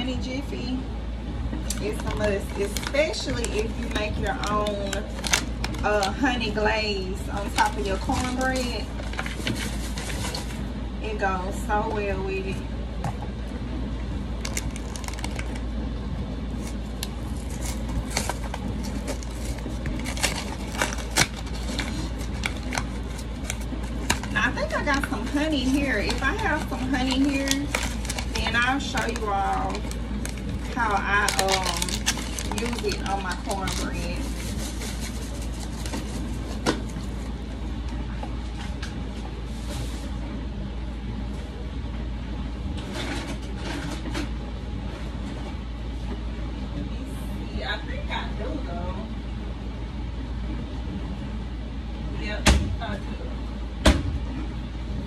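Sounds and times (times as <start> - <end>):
dishwasher humming: 0.0 - 55.0
kitchen items clicking and scraping: 7.3 - 10.6, 16.6 - 37.3.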